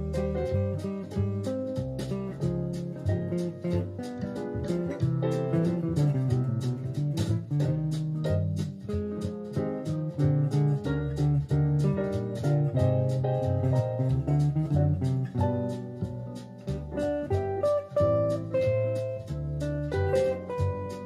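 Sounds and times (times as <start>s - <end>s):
backing track through speakers: 0.0s - 21.0s.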